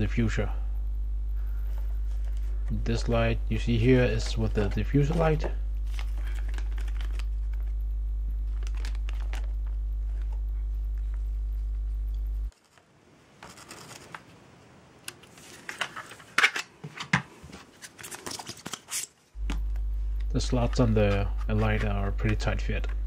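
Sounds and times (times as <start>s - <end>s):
low electrical hum: 0.0s - 23.0s
paper and packaging rustling: 3.8s - 7.7s, 8.5s - 11.2s, 12.5s - 14.4s, 15.2s - 19.2s.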